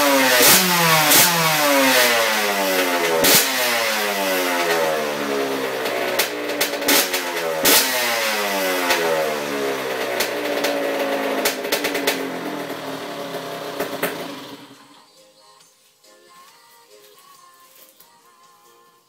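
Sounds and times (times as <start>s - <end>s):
two-stroke motocross engine: 0.0s - 14.9s
sharp engine pops: 13.8s - 14.3s.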